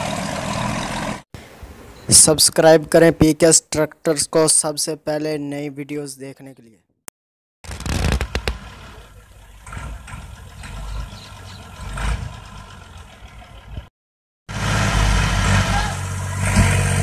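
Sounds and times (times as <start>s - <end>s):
tractor diesel engine running: 0.0s - 1.2s, 8.3s - 13.9s, 14.5s - 17.0s.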